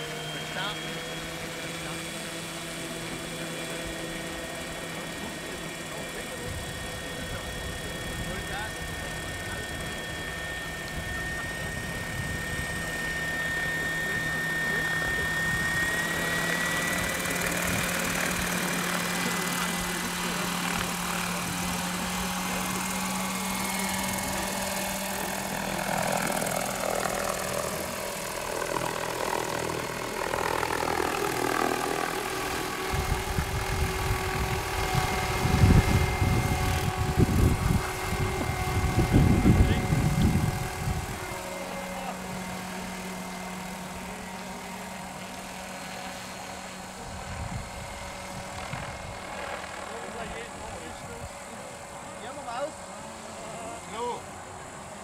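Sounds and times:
model helicopter motor whine: 0.0s - 55.0s
gusty low rumbling: 32.9s - 41.3s.

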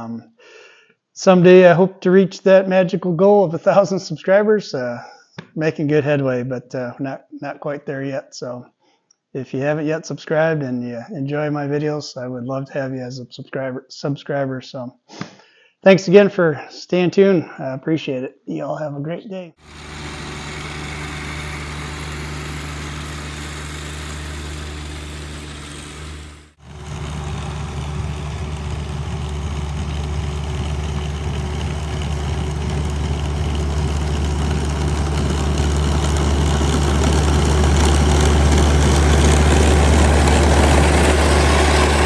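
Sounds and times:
snowblower throwing snow: 19.6s - 42.0s
tractor diesel engine running: 19.6s - 42.0s.

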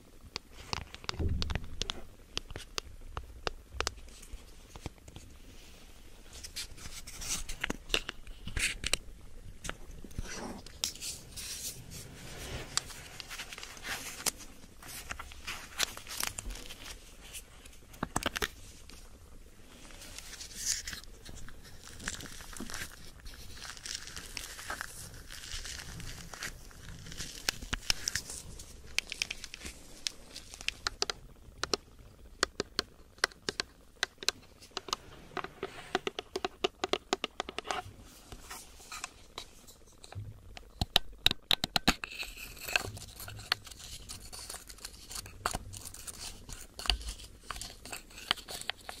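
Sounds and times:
sharp irregular clicks and taps: 0.3s - 4.0s, 30.6s - 31.8s, 32.4s - 37.8s, 40.0s - 43.6s
close crinkling: 0.3s - 49.0s.

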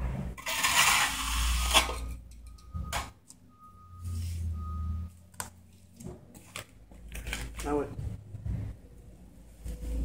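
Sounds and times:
trowel scraping wet concrete: 0.4s - 2.0s
reversing alarm beeping: 2.0s - 5.1s.

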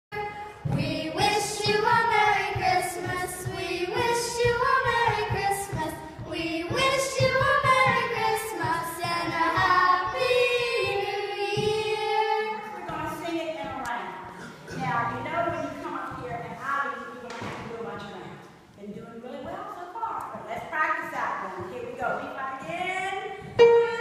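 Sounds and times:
woman and children singing carol: 0.1s - 13.2s.

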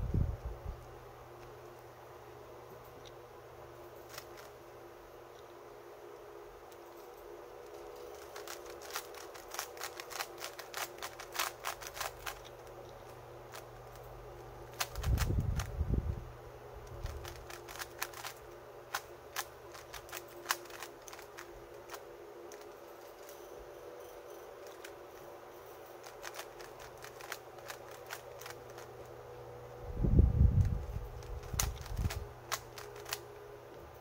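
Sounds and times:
puzzle cube clicking: 7.8s - 12.9s, 14.7s - 15.7s, 16.8s - 23.3s, 26.0s - 29.1s, 30.6s - 33.2s.

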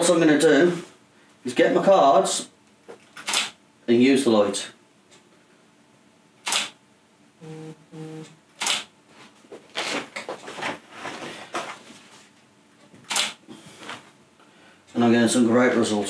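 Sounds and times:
camera shutter click: 3.2s - 3.6s, 6.4s - 6.8s, 8.6s - 8.9s, 13.1s - 13.4s.

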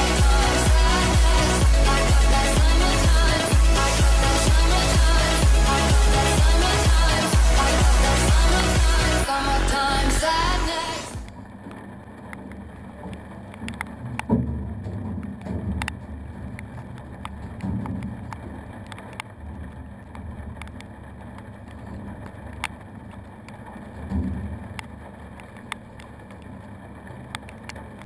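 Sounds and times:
sea around boat: 11.3s - 28.0s.

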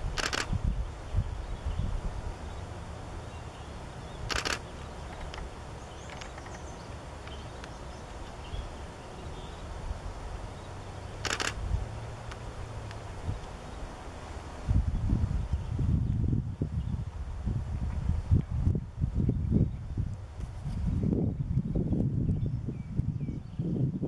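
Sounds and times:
wind rumble on microphone: 0.0s - 24.0s
short hissing burst: 4.2s - 4.7s.

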